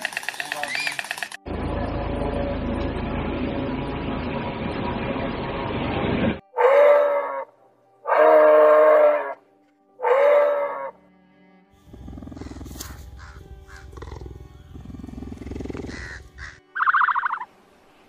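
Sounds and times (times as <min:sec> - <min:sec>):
deer calling: 0:06.6 - 0:09.4, 0:10.0 - 0:11.0, 0:11.8 - 0:17.5
low pulsing animal rumble: 0:11.8 - 0:16.6.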